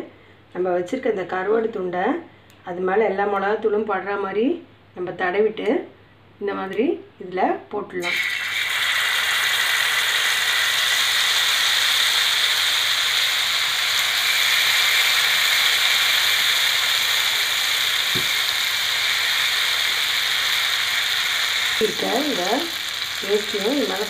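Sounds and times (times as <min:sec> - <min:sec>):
fish sizzling in oil: 0:08.0 - 0:24.0.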